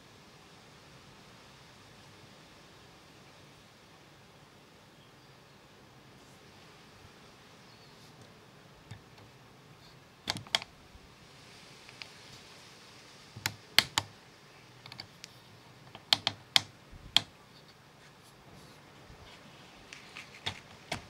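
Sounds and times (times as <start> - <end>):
sharp short clicks: 10.3 - 10.7, 13.4 - 14.1, 15.9 - 17.3.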